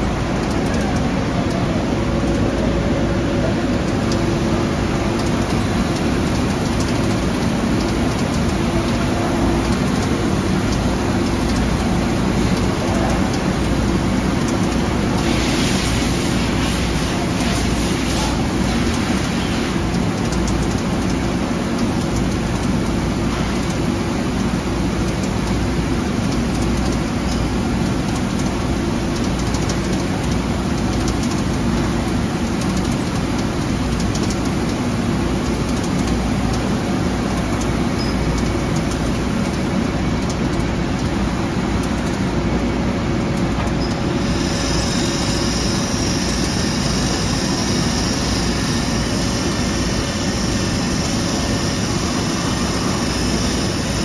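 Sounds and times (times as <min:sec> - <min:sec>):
grinder humming and hissing: 0:44.1 - 0:54.0.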